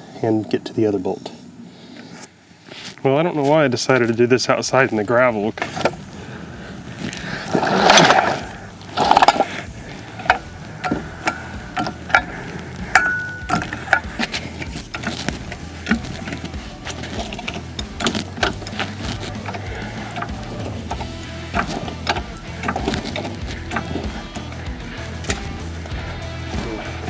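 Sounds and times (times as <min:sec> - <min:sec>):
scraping crunches on gravel: 0:02.0 - 0:24.5
metallic clicks and knocks: 0:12.9 - 0:24.6.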